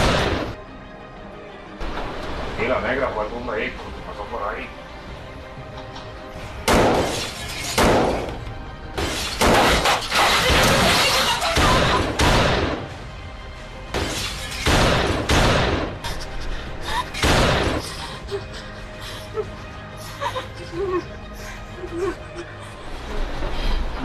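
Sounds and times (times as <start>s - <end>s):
background music: 0.0s - 24.0s
pistol shots: 6.7s - 7.2s, 7.8s - 8.3s, 14.6s - 16.0s
glass shattering: 9.0s - 12.0s.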